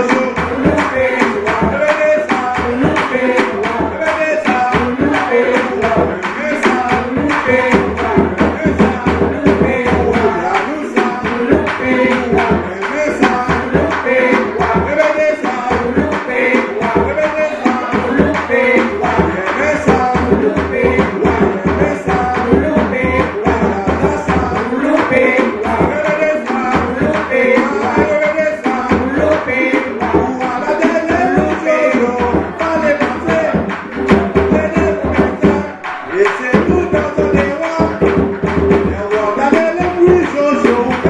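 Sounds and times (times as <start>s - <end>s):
barrel drum played by hand: 0.0s - 41.0s
group singing: 0.0s - 41.0s.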